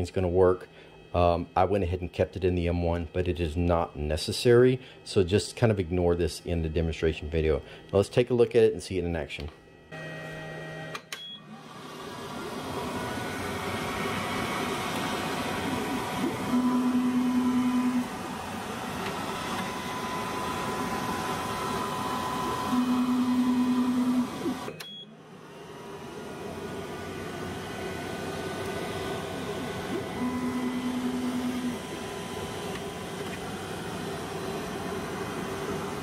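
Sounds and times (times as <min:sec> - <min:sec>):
machine and air pump hum: 0:00.0 - 0:36.0
stepper motor whine: 0:09.8 - 0:36.0.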